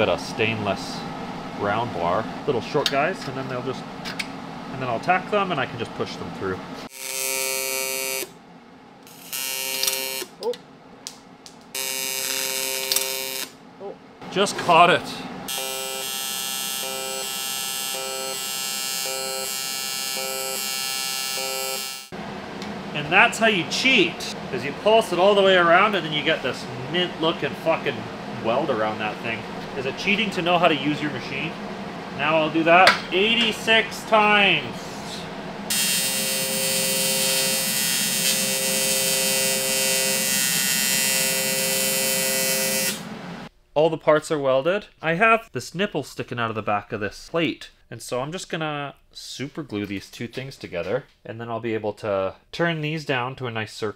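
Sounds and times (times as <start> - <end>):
welder arc buzzing: 6.9 - 8.4, 9.0 - 10.4, 11.5 - 13.6, 15.5 - 22.2, 35.5 - 43.5.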